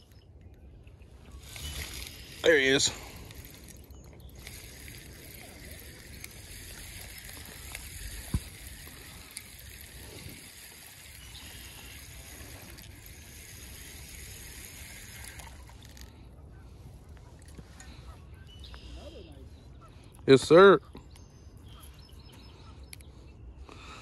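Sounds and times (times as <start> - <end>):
fishing reel handling noise: 1.2 - 16.2, 21.6 - 23.1.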